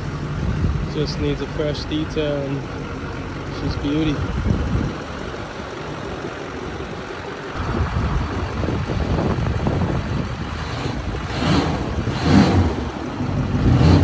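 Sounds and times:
diesel engine idling: 0:00.0 - 0:14.0
wind buffeting microphone: 0:00.3 - 0:01.3, 0:04.0 - 0:12.9.

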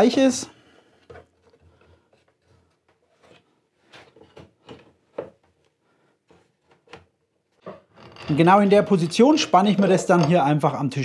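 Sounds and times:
light knocks and scrapes: 0:00.9 - 0:05.5.

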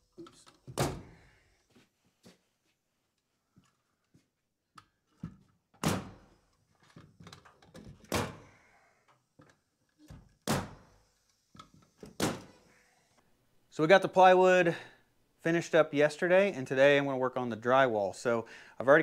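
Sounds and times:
pneumatic nailer shots: 0:10.4 - 0:11.1, 0:12.0 - 0:12.6.

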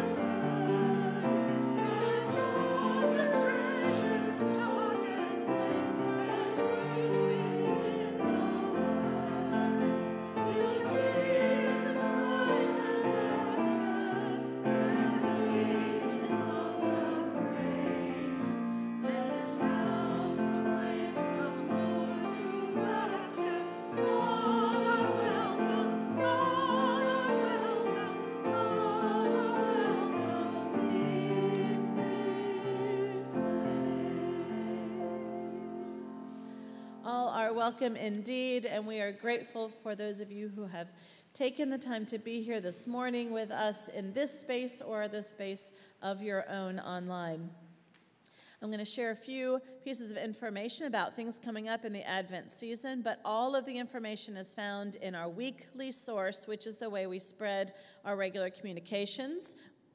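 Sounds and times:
instrumental accompaniment: 0:00.0 - 0:37.0
choir and congregation singing a hymn: 0:00.0 - 0:38.6.

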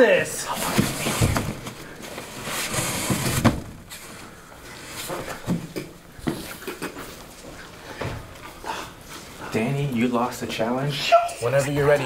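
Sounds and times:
cardboard box flaps banging: 0:02.7 - 0:03.9.

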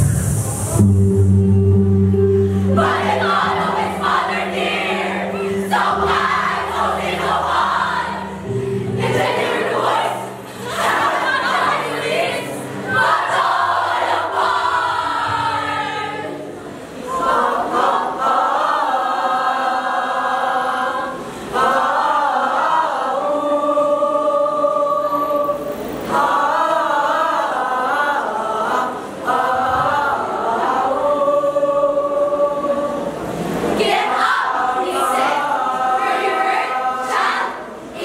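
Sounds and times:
mixed choir singing: 0:02.6 - 0:38.0.

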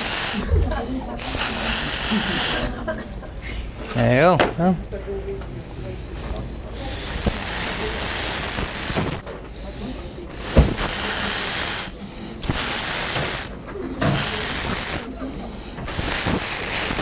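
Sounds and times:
atomizer spray hissing: 0:00.0 - 0:00.5, 0:01.2 - 0:02.8, 0:06.7 - 0:17.0
person breathing: 0:03.4 - 0:03.8, 0:09.4 - 0:10.5, 0:11.3 - 0:12.9, 0:15.2 - 0:16.7.

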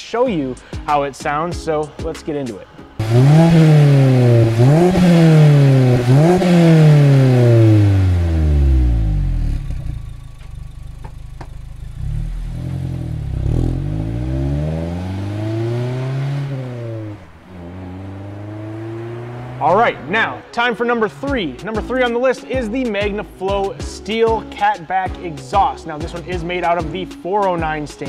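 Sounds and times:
car engine idling: 0:02.9 - 0:20.4
car accelerating through gears: 0:03.0 - 0:20.1
car engine revving: 0:03.0 - 0:20.5.

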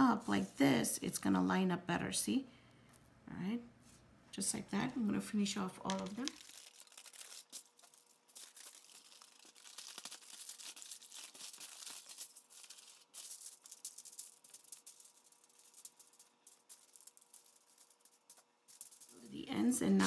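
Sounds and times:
aluminium foil crinkling: 0:05.8 - 0:20.0.

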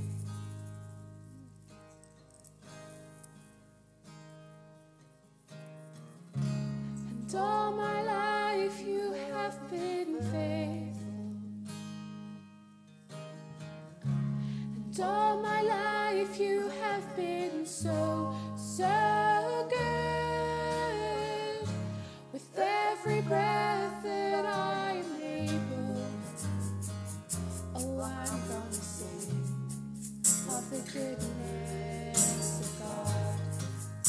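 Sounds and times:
strummed acoustic guitar: 0:00.0 - 0:34.0
woman singing worship song: 0:07.1 - 0:11.5, 0:14.8 - 0:26.5, 0:27.7 - 0:29.7, 0:30.4 - 0:33.8
hand percussion ticks: 0:26.2 - 0:34.0
electric bass: 0:26.3 - 0:34.0.

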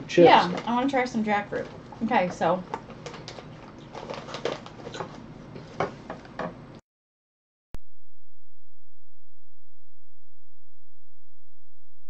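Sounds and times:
plastic bag crinkling: 0:02.8 - 0:05.2
paper rustling: 0:02.9 - 0:05.2.

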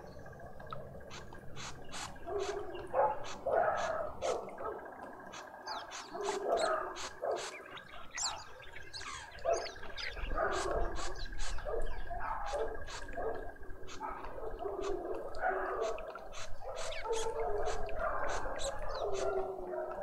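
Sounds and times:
small birds chirping: 0:00.0 - 0:20.0
dog barking: 0:02.2 - 0:04.8, 0:05.7 - 0:07.6, 0:09.4 - 0:20.0.

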